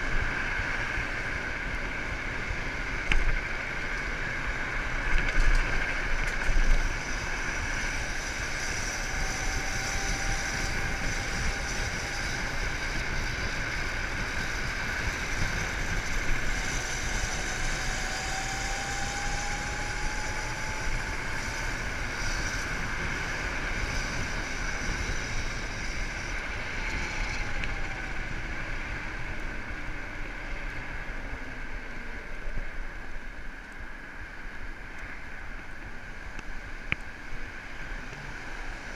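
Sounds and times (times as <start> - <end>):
faint rising whine: 0.0 - 38.9
motorbike road noise: 0.0 - 38.9
wind rushing over microphone: 0.0 - 38.9.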